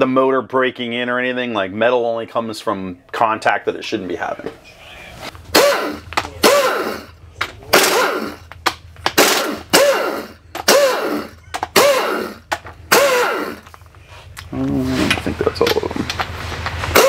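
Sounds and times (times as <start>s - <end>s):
impact driver rattling: 5.5s - 13.8s, 15.1s - 17.0s.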